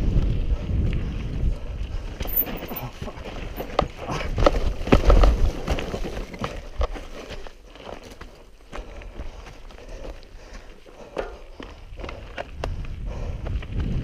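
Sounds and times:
mountain bike rattling and skidding: 2.0s - 8.6s.

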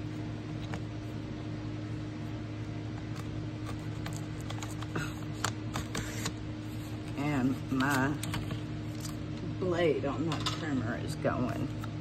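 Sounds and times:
steady low hum: 0.0s - 12.0s
paper trimmer cutting card: 3.0s - 6.4s.

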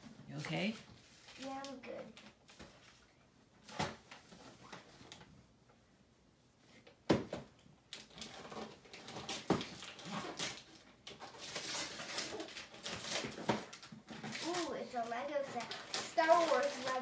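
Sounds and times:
wrapping paper tearing and crinkling: 1.0s - 2.6s, 7.9s - 17.0s.

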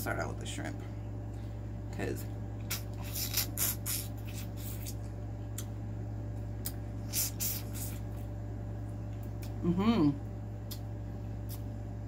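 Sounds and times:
lips smacking and sucking: 2.6s - 5.7s, 6.6s - 8.2s, 10.6s - 11.7s.

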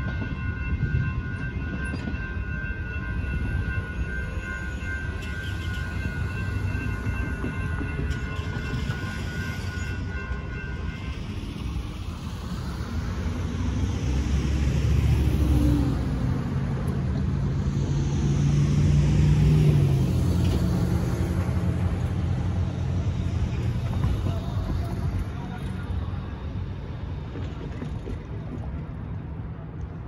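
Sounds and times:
railroad crossing bell ringing: 0.0s - 17.6s, 19.3s - 27.6s
vehicles driving past: 12.1s - 30.0s.

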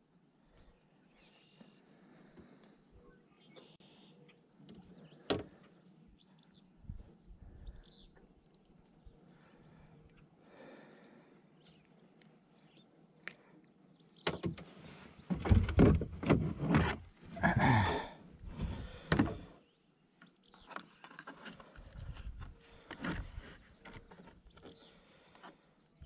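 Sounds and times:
knocks and scraping on plastic kayak: 14.3s - 17.2s, 20.6s - 25.7s.

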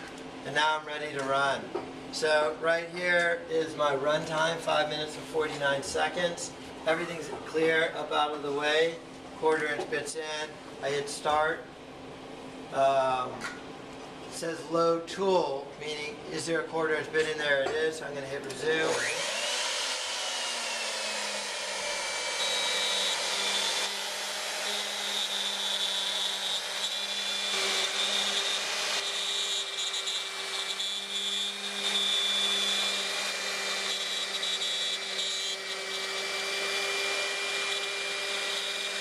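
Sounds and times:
router spindle cutting wood: 18.8s - 39.0s.

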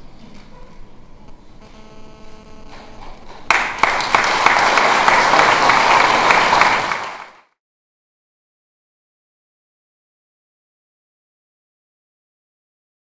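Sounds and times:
audience applauding: 3.4s - 7.5s.

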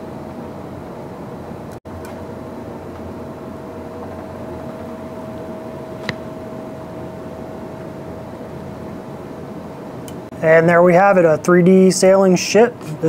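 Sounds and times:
steady mechanical hum: 0.0s - 13.0s
sharp click: 6.0s - 6.2s.

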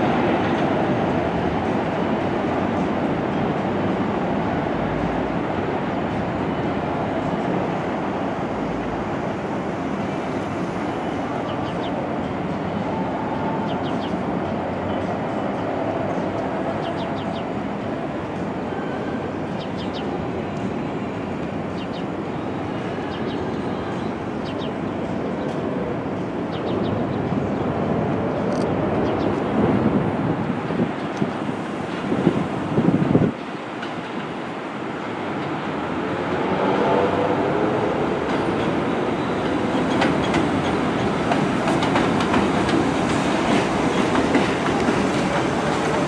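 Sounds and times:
train wheels rumbling on rail: 0.0s - 46.0s.

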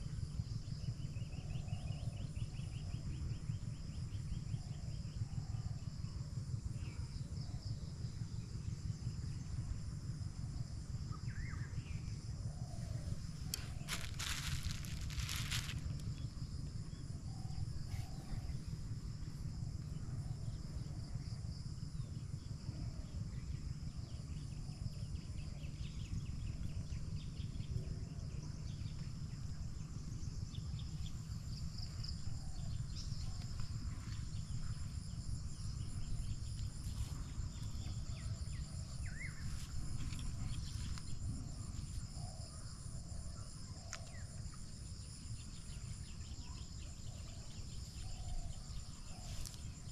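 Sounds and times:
insects chirping: 0.0s - 49.9s
low steady rumble: 0.0s - 49.9s.

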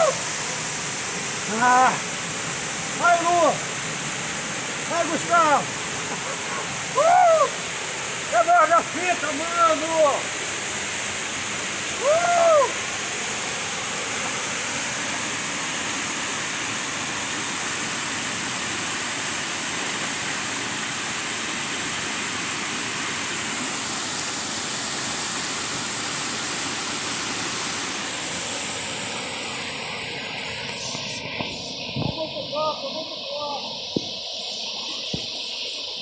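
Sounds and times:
waterfall rushing: 0.0s - 36.0s
person shouting: 1.5s - 2.0s, 3.0s - 3.6s, 4.9s - 5.6s, 6.9s - 7.6s, 8.3s - 10.2s, 12.0s - 12.8s.

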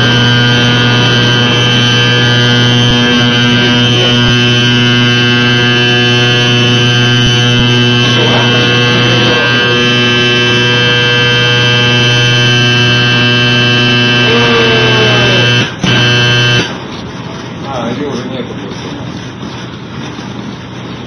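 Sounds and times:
ship's whistle blast: 0.0s - 16.7s.

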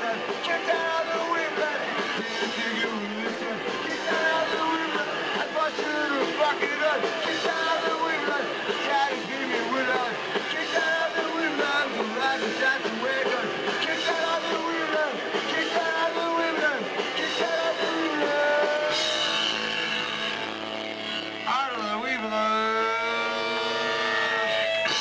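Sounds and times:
person singing: 0.0s - 19.2s
electric guitar: 0.0s - 25.0s.

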